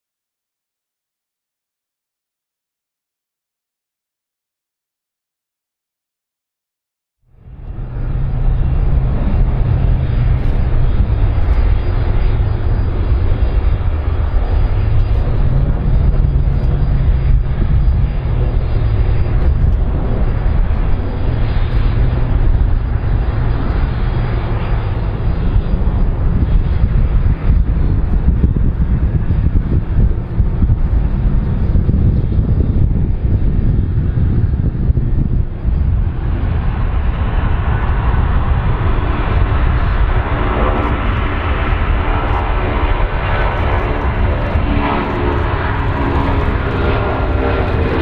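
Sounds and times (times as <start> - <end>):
jet engines rumbling with hiss: 7.3 - 48.0.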